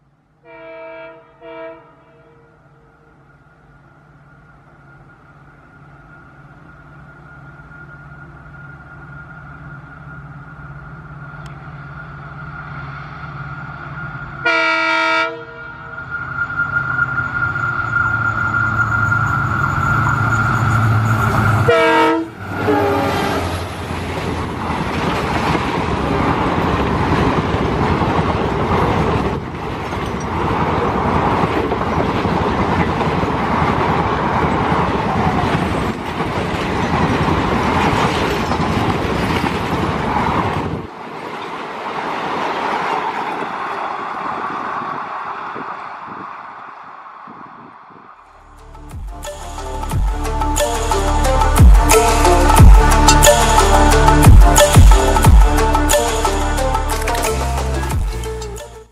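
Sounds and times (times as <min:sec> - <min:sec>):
diesel locomotive engine: 0:00.0 - 0:58.9
locomotive air horn blasts: 0:00.4 - 0:03.0, 0:14.4 - 0:23.6
steady high whine: 0:02.6 - 0:14.5
train wheel clatter and rumble: 0:22.4 - 0:46.4.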